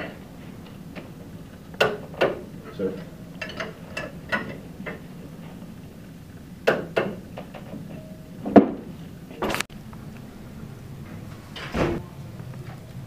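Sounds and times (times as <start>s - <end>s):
wrench clanking on metal: 3.4s - 5.0s.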